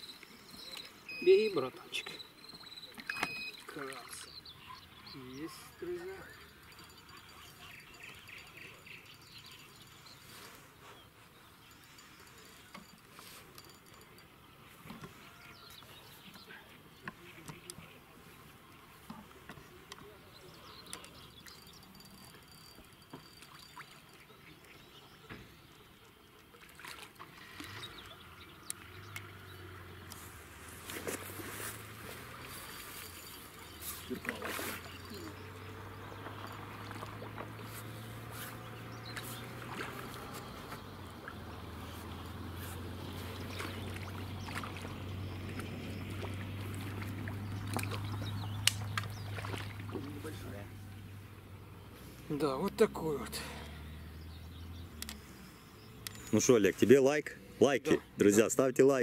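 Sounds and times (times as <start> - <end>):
small water splashes: 2.3 - 4.4, 23.2 - 51.4.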